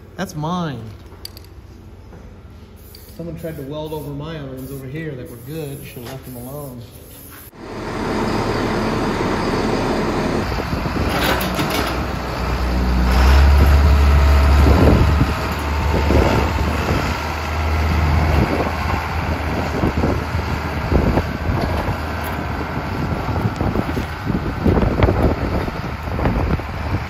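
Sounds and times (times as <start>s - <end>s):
heavy vehicle engine rumbling: 7.5s - 27.0s.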